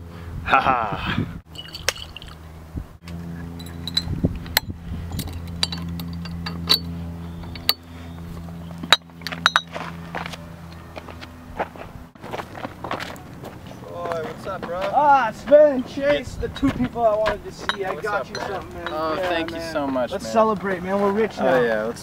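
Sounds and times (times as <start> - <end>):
steady low hum: 0.0 - 22.0
glass bottles clinking: 1.5 - 2.4, 3.6 - 4.2, 5.1 - 7.8, 8.8 - 9.7, 17.6 - 19.6
swing-top stoppers clicking: 3.0 - 7.9.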